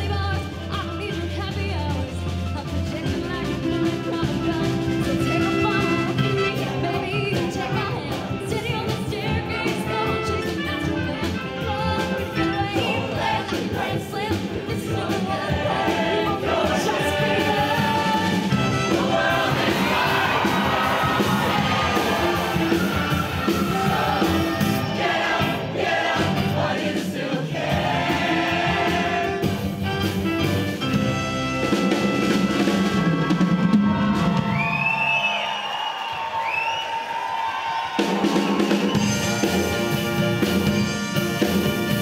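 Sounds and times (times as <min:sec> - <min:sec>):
instrumental accompaniment with beat: 0:00.0 - 0:35.1, 0:37.9 - 0:42.0
choir singing: 0:11.7 - 0:29.7.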